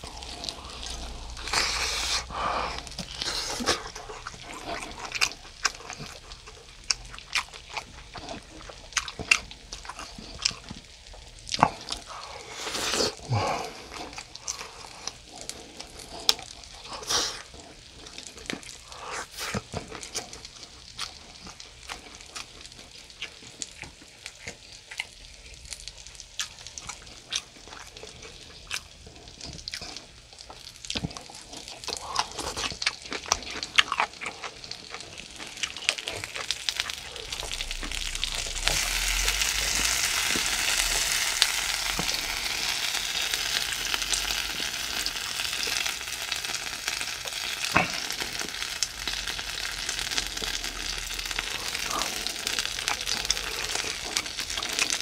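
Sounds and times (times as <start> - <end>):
fish sizzling in a pan: 34.1 - 55.0.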